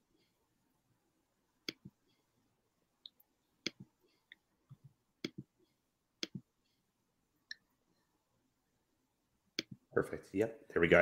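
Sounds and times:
computer mouse clicking: 5.2s - 5.5s, 6.2s - 6.4s.

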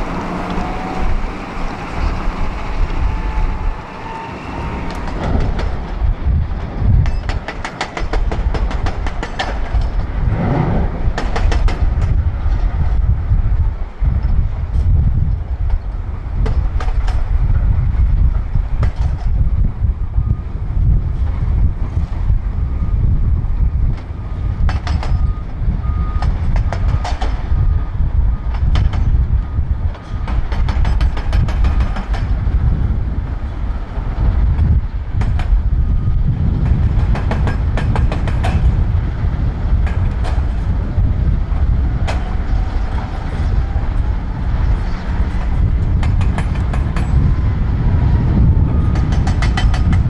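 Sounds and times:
diesel loader engine rumbling: 0.0s - 50.0s
sharp knocks and rattles: 4.9s - 10.2s, 11.1s - 13.0s, 29.9s - 32.4s, 36.6s - 38.8s, 45.4s - 47.4s, 48.9s - 50.0s
reversing alarm beeps: 24.1s - 30.4s, 35.9s - 36.4s, 48.4s - 49.2s.

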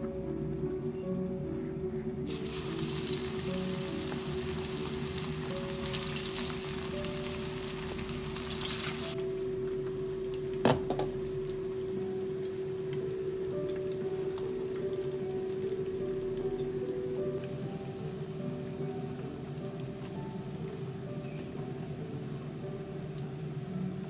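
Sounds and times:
soft background music: 0.0s - 24.0s
oil sizzling in a frying pan: 2.3s - 9.2s, 17.2s - 24.0s.

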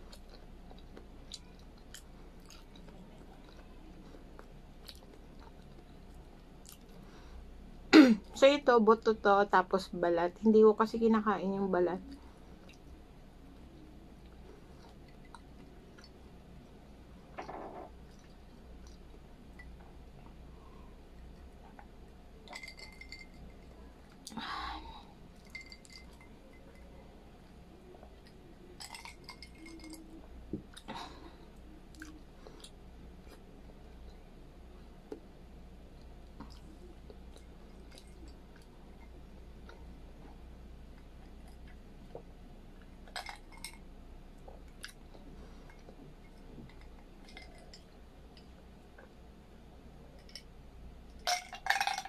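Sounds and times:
chewing and swallowing: 0.0s - 7.1s, 12.1s - 16.8s, 17.4s - 24.4s, 25.3s - 34.2s, 35.9s - 49.2s
low steady hum: 0.0s - 52.0s
drinking glass clinking: 22.4s - 23.7s, 25.4s - 27.0s.

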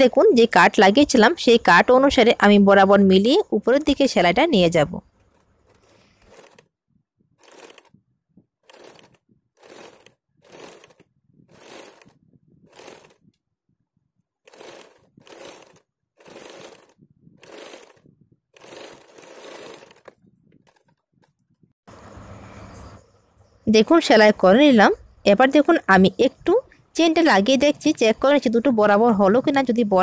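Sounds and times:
electric sewing machine stitching: 5.1s - 6.7s, 7.4s - 8.0s, 8.6s - 13.2s, 14.4s - 21.0s.

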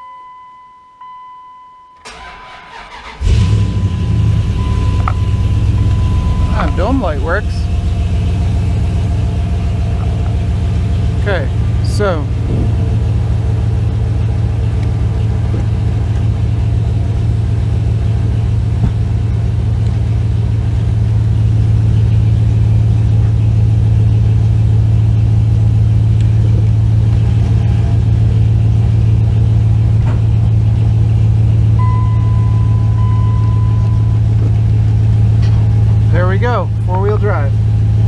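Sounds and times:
pickup engine idling: 2.0s - 38.0s
electronic beep: 3.8s - 7.1s, 31.8s - 34.3s.

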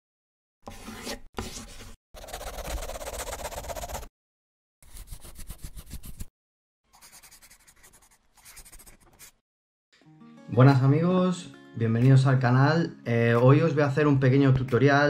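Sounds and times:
pencil scribbling on paper: 0.7s - 4.1s, 4.8s - 6.3s, 6.9s - 9.4s.

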